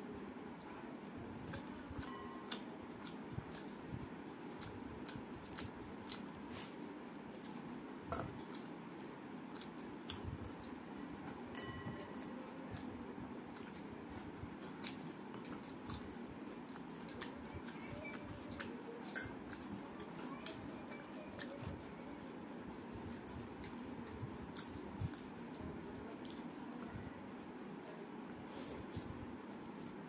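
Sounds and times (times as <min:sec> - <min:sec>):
soft chewing: 0:00.0 - 0:30.0.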